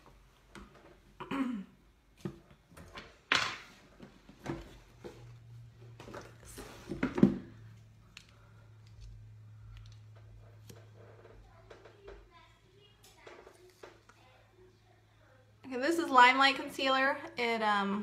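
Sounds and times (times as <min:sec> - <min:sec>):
person clearing throat: 0:01.2 - 0:01.8
makeup items knocking and rustling: 0:02.2 - 0:07.7.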